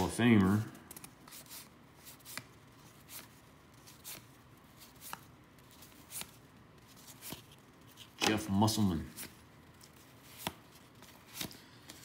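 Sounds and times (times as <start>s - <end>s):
cards flipped by hand: 0.0s - 12.0s.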